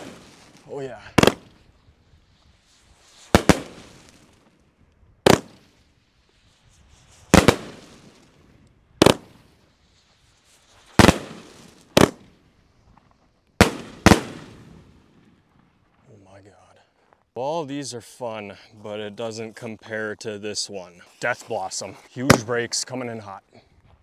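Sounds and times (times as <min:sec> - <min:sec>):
firework bangs with rumble: 0:01.2 - 0:01.6, 0:05.2 - 0:05.6, 0:07.2 - 0:08.1.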